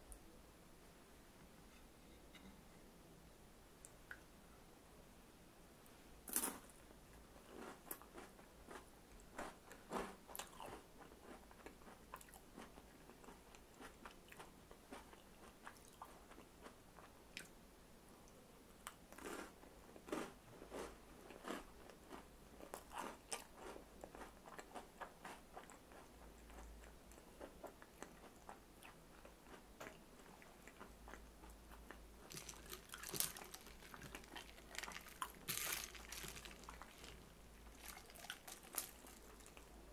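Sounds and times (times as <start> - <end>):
person chewing crisp crackers: 7.4 - 17.5, 18.8 - 39.8.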